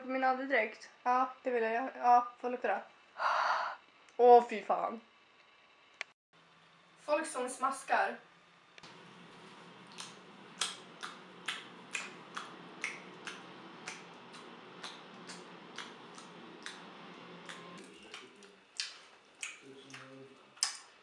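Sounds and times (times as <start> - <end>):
low steady hum: 0.0 - 21.0
open-mouthed chewing: 9.9 - 20.9.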